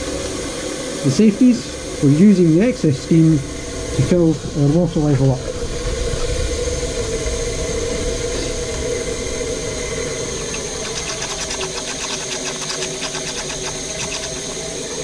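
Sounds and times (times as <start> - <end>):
steam injector hissing: 10.1 - 15.0
fast fine ticking: 10.3 - 14.8.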